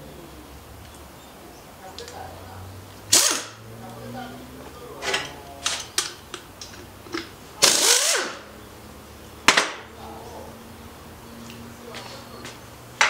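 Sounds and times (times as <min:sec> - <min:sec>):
pneumatic tool air hissing: 0:03.1 - 0:03.6, 0:07.6 - 0:08.4.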